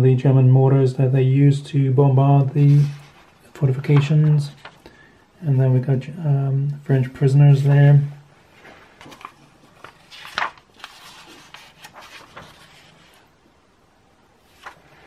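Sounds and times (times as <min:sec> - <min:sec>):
magazine pages rustling: 0:02.6 - 0:04.9, 0:08.6 - 0:13.3, 0:14.4 - 0:15.0.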